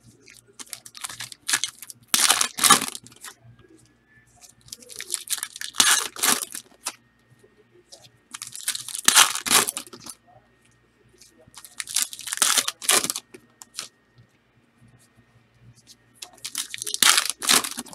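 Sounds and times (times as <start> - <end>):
wrappers torn and crinkled: 0.6 - 3.3, 4.7 - 7.0, 8.3 - 10.1, 11.6 - 13.9, 16.2 - 17.9.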